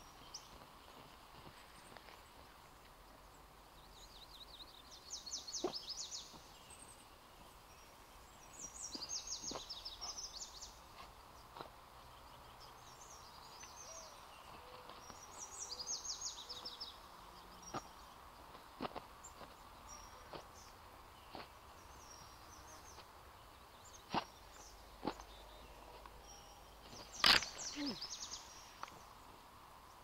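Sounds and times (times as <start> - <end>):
songbird trilling: 25.1 - 29.0.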